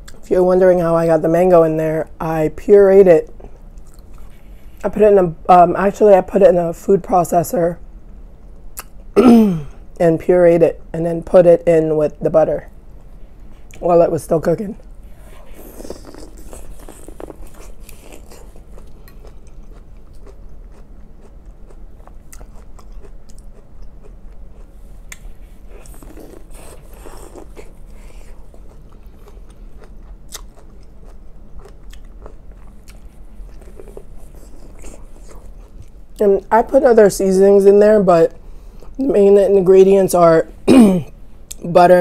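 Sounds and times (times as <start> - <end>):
crunching and chewing corn: 15.1 - 36.2.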